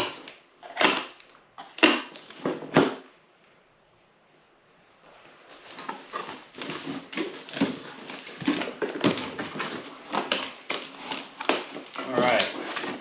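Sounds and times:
cardboard box scraping and rustling: 5.3 - 13.0.

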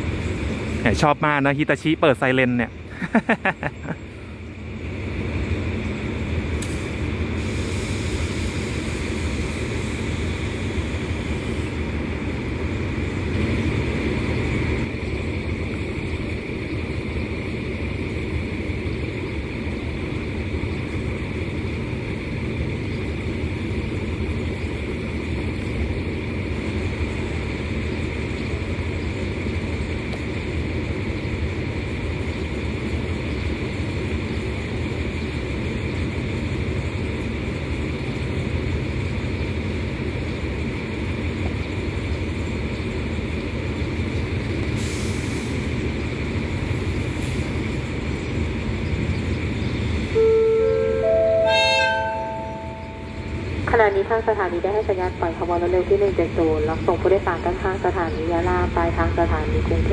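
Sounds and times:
locomotive engine running: 0.0 - 59.9
air hisses: 6.6 - 11.8.

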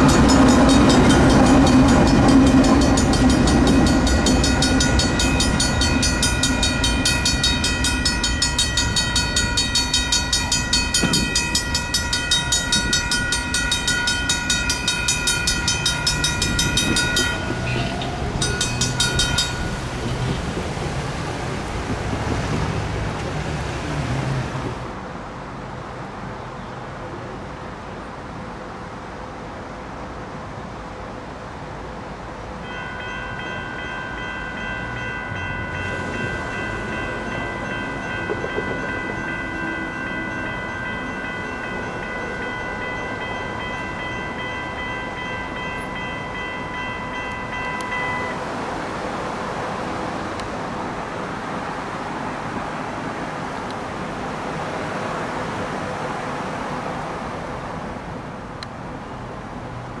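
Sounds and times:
railroad crossing bell ringing: 0.0 - 20.6, 32.6 - 49.5
train passing: 0.0 - 60.0.

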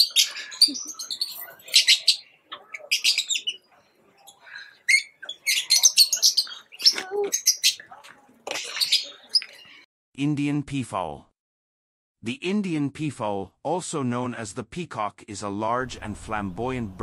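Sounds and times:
birds chirping: 0.0 - 9.9.

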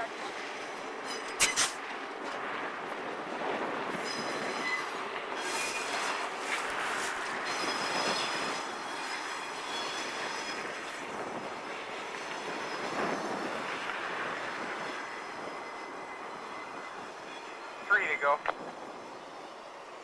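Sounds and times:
train rolling along track: 0.0 - 20.0
high wheel squeal: 3.9 - 18.0.

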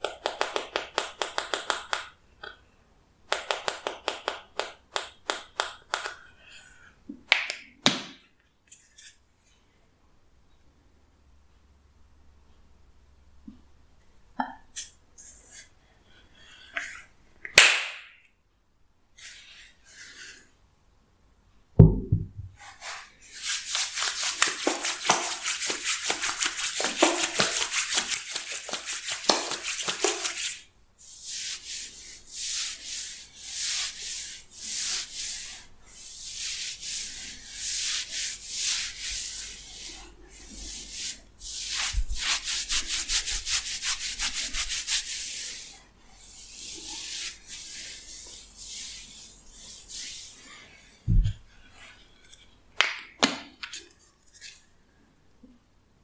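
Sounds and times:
palm thump on head: 21.8 - 22.5
fingers rubbing oiled hair: 23.3 - 45.7.

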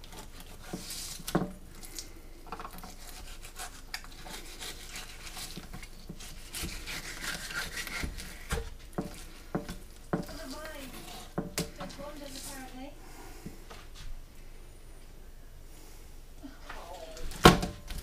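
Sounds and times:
knife scraping fish on board: 0.0 - 1.5, 2.6 - 12.6.

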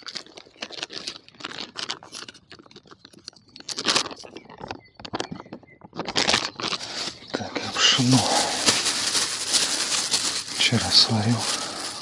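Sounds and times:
plastic packets crinkling: 0.0 - 5.3, 6.0 - 12.0.

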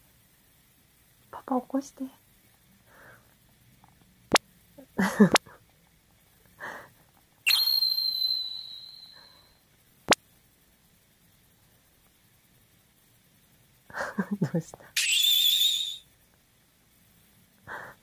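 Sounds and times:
high ringing tone: 7.5 - 9.6.

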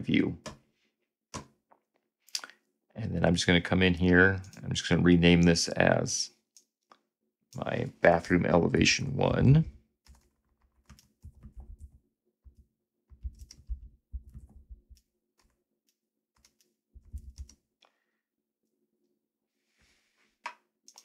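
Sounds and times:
faint keyboard typing: 9.6 - 15.6, 16.4 - 17.7, 20.5 - 21.0.

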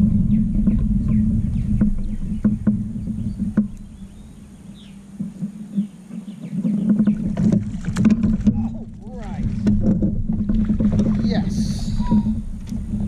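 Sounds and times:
sharp clicks and knocks: 0.0 - 4.0, 6.6 - 8.7, 9.3 - 11.2
water around kayak: 0.0 - 13.0
wind noise: 0.0 - 13.0.

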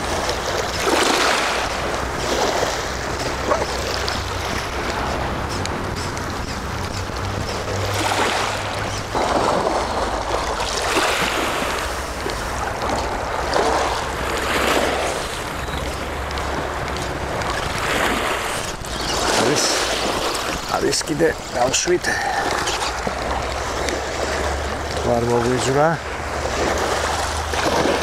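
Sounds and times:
sea waves breaking on shore: 0.0 - 28.0.

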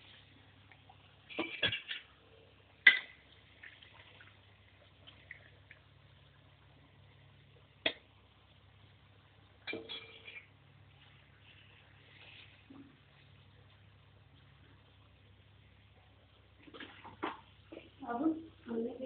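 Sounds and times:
metal spoon scraping steel pan: 9.7 - 10.5.

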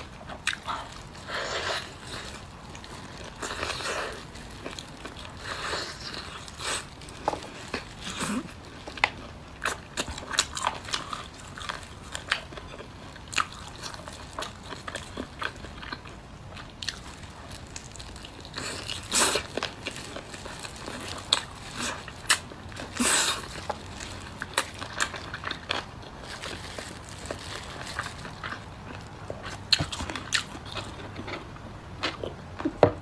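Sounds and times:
person chewing and lip smacking: 0.0 - 2.5.

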